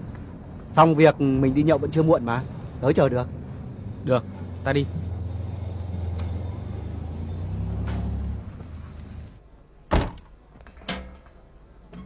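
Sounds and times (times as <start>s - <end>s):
car doors thudding shut: 9.9s - 10.3s.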